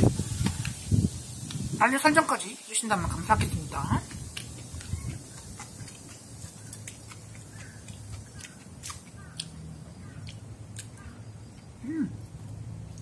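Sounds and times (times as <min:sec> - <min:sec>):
soft chewing: 0:03.9 - 0:13.0.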